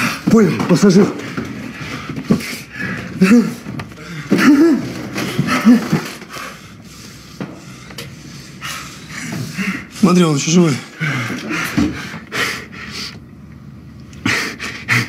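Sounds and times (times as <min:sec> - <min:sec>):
man groaning in pain: 0:03.2 - 0:06.1.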